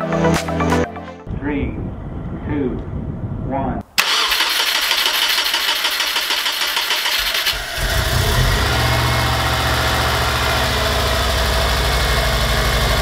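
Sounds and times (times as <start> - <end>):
car engine cranking and idling: 4.0 - 13.0.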